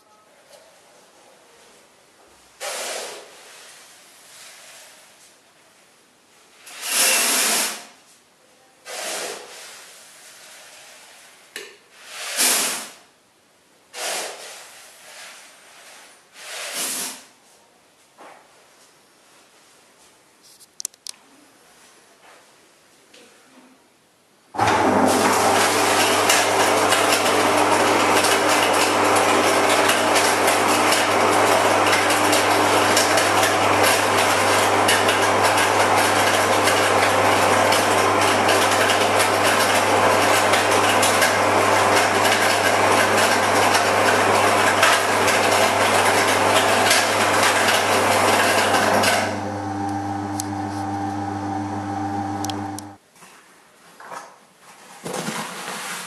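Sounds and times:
electric motor hum: 0:37.8 - 0:53.0.

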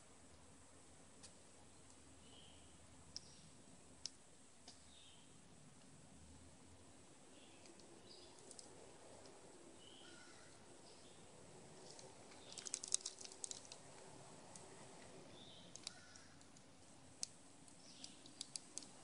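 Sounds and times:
squirrel cracking seeds: 0:07.4 - 0:11.0, 0:11.6 - 0:19.0.

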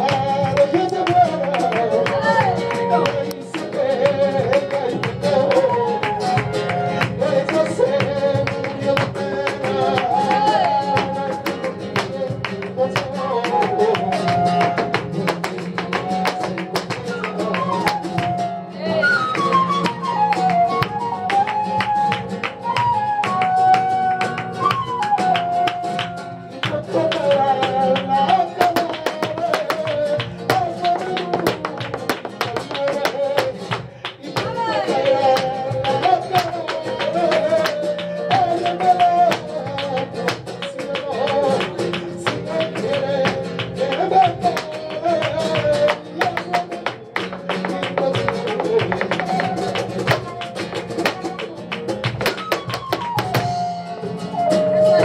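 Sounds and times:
guitar: 0:00.0 - 0:55.0
person singing long sliding phrases: 0:34.2 - 0:46.8
dance footwork taps on floor: 0:44.5 - 0:53.6.

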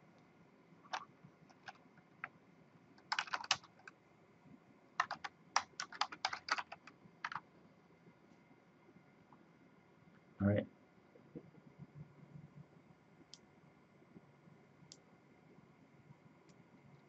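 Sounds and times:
typing on keyboard: 0:00.8 - 0:02.4, 0:03.0 - 0:04.0, 0:05.0 - 0:07.4.

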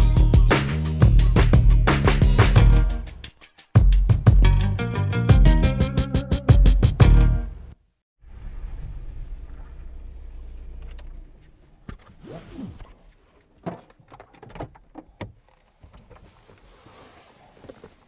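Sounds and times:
van engine rumbling: 0:07.4 - 0:11.9.

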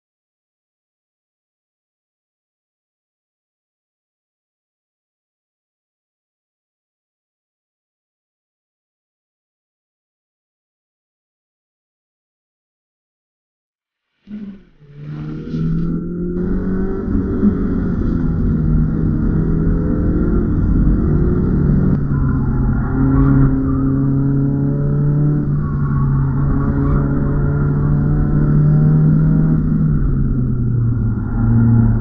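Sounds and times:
car engine revving: 0:14.2 - 0:32.0.

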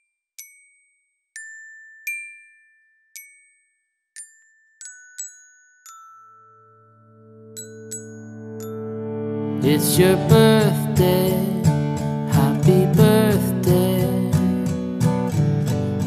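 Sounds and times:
glockenspiel-like bell notes: 0:00.0 - 0:14.8
soft low backing chord: 0:08.3 - 0:14.4.

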